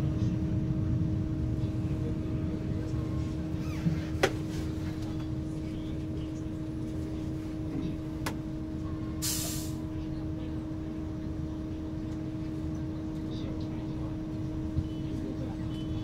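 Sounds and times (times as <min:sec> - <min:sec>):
bus interior hum: 0:00.0 - 0:16.0
air brake hiss: 0:09.2 - 0:09.8.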